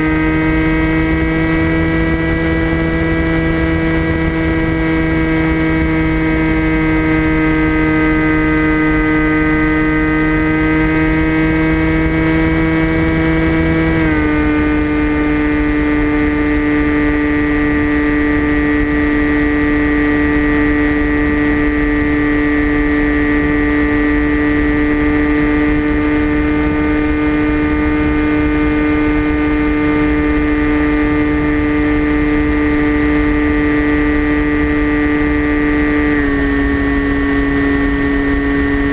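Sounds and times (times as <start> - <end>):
low wind noise: 0.0 - 38.9
propeller motor high drone: 0.0 - 38.9.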